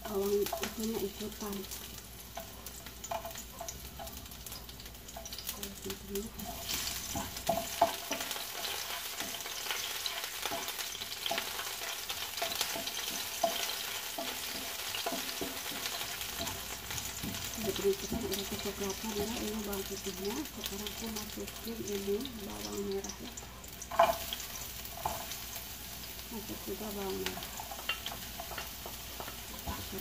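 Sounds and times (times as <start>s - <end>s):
garlic sizzling in hot oil: 0.0s - 30.0s
wooden spatula scraping a pan: 23.9s - 25.8s, 26.4s - 30.0s.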